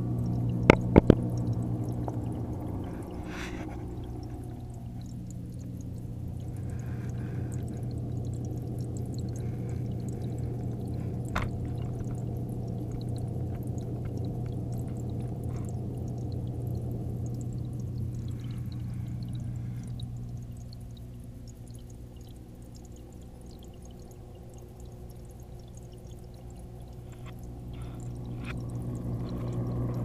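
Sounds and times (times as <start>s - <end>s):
faint scattered ticks: 0.0s - 30.0s
underwater aquarium hum: 0.0s - 30.0s.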